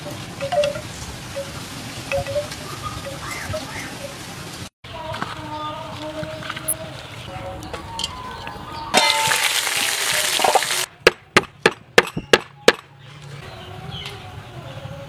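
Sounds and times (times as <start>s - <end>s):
cleaver chopping on wooden board: 11.0s - 12.8s.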